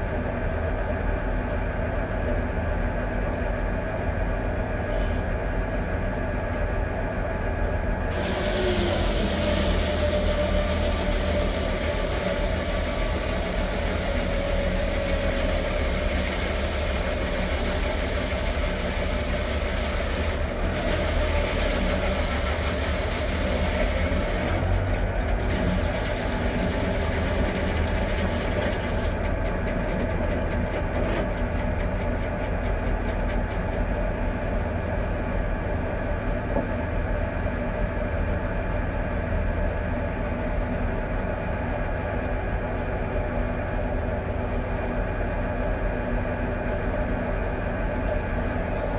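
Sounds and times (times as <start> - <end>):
diesel tractor engine running: 0.0 - 48.9
circular saw blade cutting log: 8.1 - 24.6.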